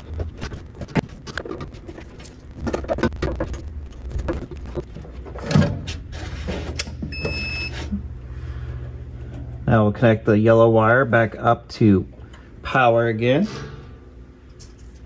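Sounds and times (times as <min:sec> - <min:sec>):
multimeter beep: 0:07.1 - 0:07.8.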